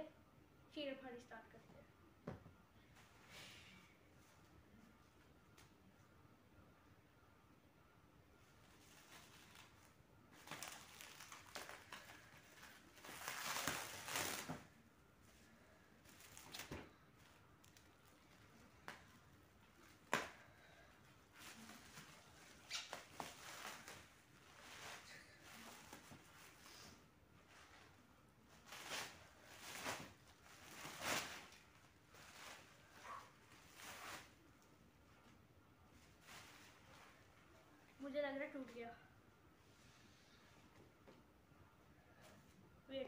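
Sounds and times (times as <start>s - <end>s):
plastic wrapping crinkling: 8.8s - 14.7s, 28.5s - 34.4s.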